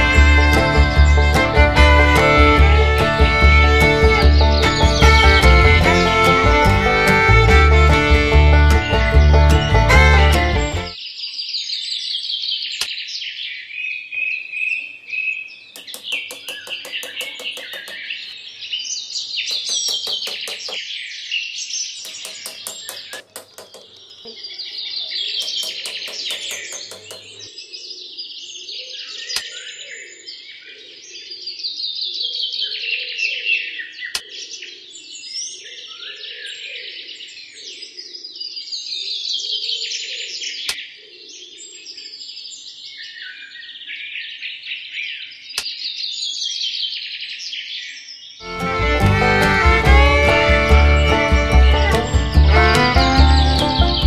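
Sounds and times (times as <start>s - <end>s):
low rhythmic bird chirping: 2.9s - 7.8s, 10.9s - 30.4s, 40.0s - 54.0s
small birds chirping: 10.9s - 30.4s, 44.3s - 54.0s
rapid clicking bird trills: 15.7s - 18.4s, 19.4s - 20.8s, 22.0s - 27.5s.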